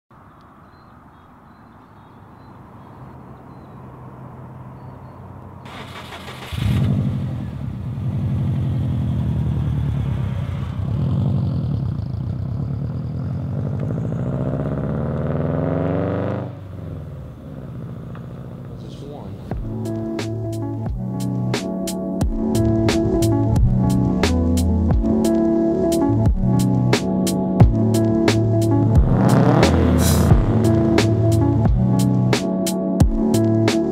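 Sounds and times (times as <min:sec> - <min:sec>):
car engine running and revving: 0:05.6 - 0:33.9
engine cranking: 0:05.7 - 0:07.4.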